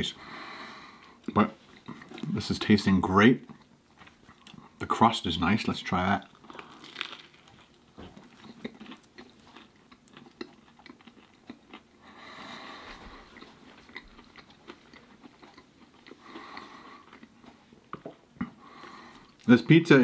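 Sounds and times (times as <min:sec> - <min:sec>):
crunchy chewing with mouth clicks: 0:01.0 - 0:02.4, 0:03.4 - 0:04.8, 0:06.2 - 0:19.5
biting crispy pizza: 0:06.2 - 0:11.9.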